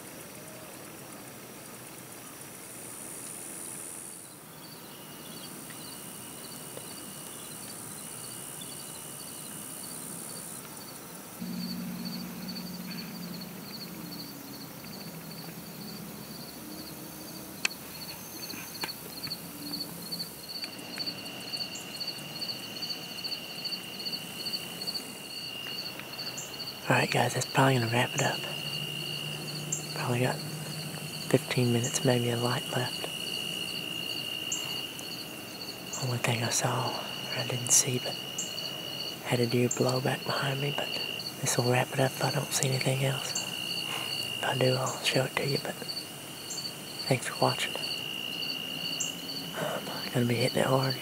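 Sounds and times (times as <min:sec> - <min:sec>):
crickets chirping: 0:00.0 - 0:51.0
insects buzzing: 0:00.0 - 0:51.0
low drone: 0:11.4 - 0:21.6, 0:24.0 - 0:38.2.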